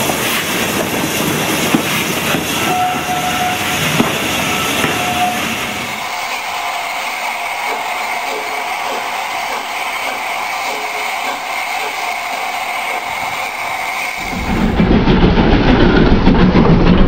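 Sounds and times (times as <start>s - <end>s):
model train motor whirring: 6.0s - 14.2s.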